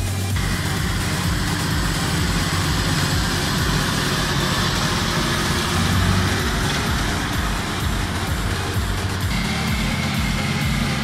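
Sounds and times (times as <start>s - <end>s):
baler machinery: 0.0s - 11.0s
tractor diesel engine under load: 0.0s - 11.0s.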